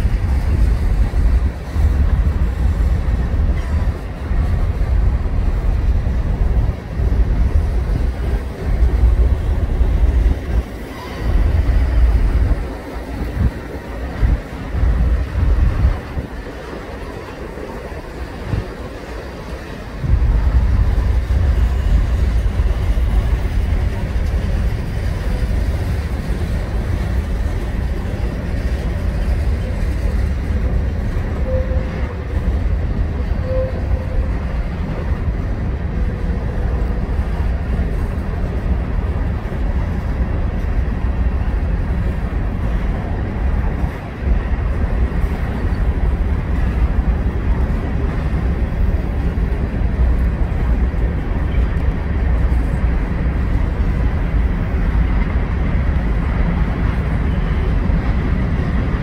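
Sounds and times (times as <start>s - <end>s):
freight train rumbling past: 0.0s - 59.0s.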